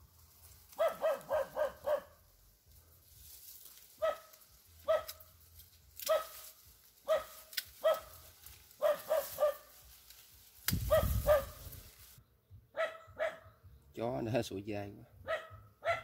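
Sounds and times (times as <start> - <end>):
dog barking: 0.8 - 2.2, 4.0 - 5.2, 6.1 - 6.4, 7.0 - 8.2, 8.8 - 9.7, 10.9 - 11.6, 12.7 - 13.5, 15.2 - 16.0.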